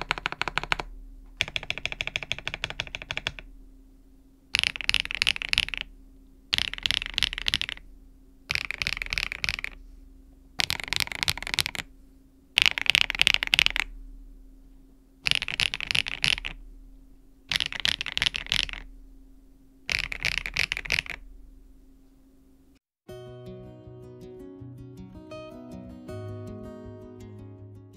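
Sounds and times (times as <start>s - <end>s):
mechanical keyboard typing: 0.0s - 3.5s, 4.5s - 5.9s, 6.5s - 7.8s, 8.5s - 9.8s, 10.6s - 11.9s, 12.6s - 13.9s, 15.2s - 16.6s, 17.5s - 18.9s, 19.9s - 21.2s.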